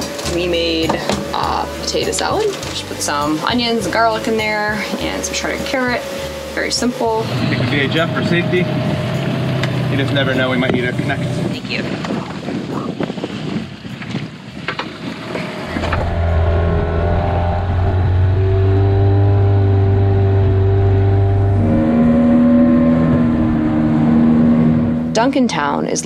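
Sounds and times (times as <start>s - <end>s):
outboard motor running: 0.0s - 26.0s.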